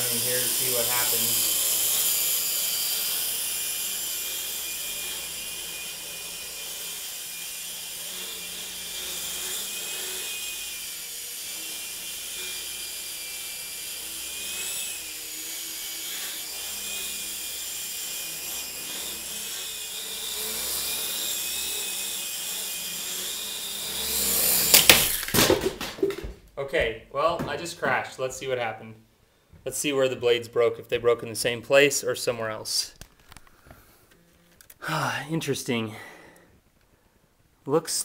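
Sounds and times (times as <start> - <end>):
rc helicopter motor whine: 0.0 - 25.2.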